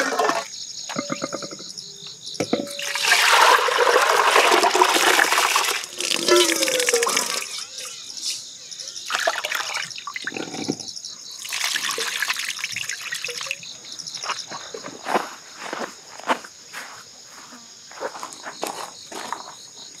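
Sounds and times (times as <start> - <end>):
pot knocking: 0.1 - 1.7, 2.4 - 3.0
water sloshing over rice: 2.8 - 7.5, 9.1 - 10.3, 11.4 - 13.5
water pouring onto ground: 2.8 - 7.6, 9.1 - 10.4, 11.4 - 13.6.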